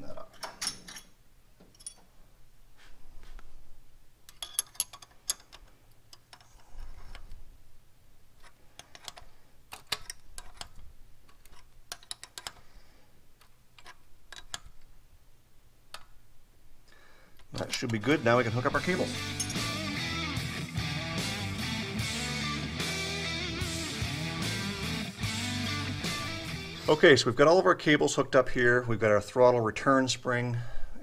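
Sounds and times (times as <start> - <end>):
ratcheting wrench clicking: 11.4 - 12.6.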